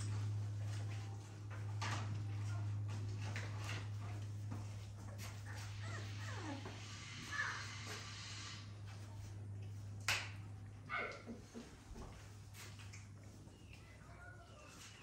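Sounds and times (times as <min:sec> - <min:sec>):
puppy whimpering: 0:05.2 - 0:07.7.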